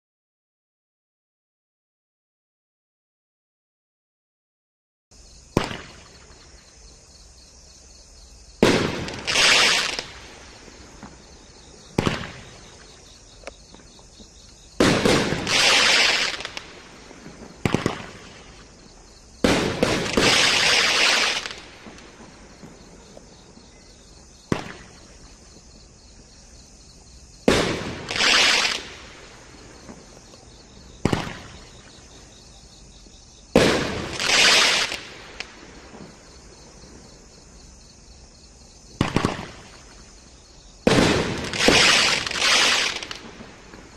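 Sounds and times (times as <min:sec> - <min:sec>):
firework launch bangs: 0:05.5 - 0:06.4, 0:08.6 - 0:11.3, 0:11.9 - 0:13.0, 0:14.8 - 0:18.7, 0:19.4 - 0:23.0, 0:24.4 - 0:25.2, 0:27.4 - 0:30.2, 0:31.0 - 0:31.9, 0:33.5 - 0:36.2, 0:38.9 - 0:40.0, 0:40.8 - 0:43.9
firework crackling: 0:05.5 - 0:06.6, 0:08.6 - 0:23.6, 0:24.4 - 0:25.4, 0:27.4 - 0:32.3, 0:33.4 - 0:37.0, 0:38.9 - 0:40.1, 0:40.8 - 0:43.9.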